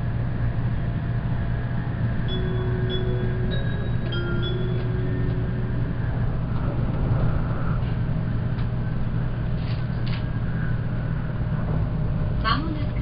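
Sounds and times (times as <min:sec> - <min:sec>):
train rumble and hum: 0:00.0 - 0:13.0
arrival chime: 0:02.3 - 0:06.6.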